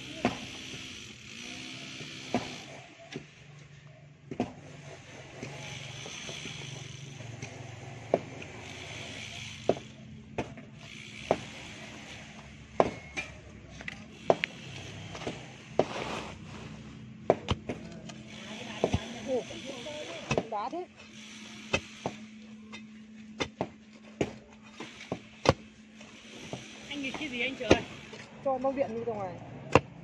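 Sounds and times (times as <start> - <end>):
pickaxe chopping stony earth: 12.8 - 13.4, 17.2 - 17.8, 20.2 - 20.7, 25.0 - 25.7, 29.6 - 30.0.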